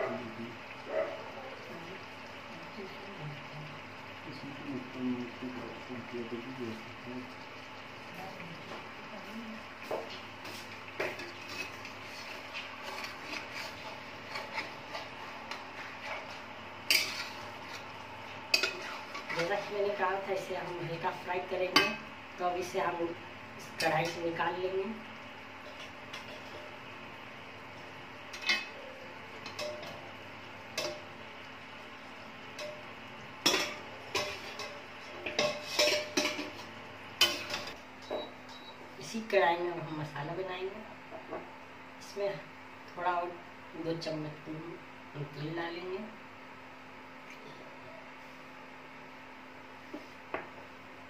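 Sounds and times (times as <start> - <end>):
metal spatula scraping a pan: 10.4 - 17.9, 18.5 - 19.8, 33.4 - 37.8.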